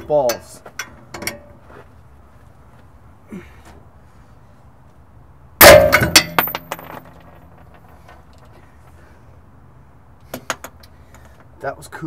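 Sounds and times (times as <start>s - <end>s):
metal object crashing onto pavement: 5.6s - 7.5s.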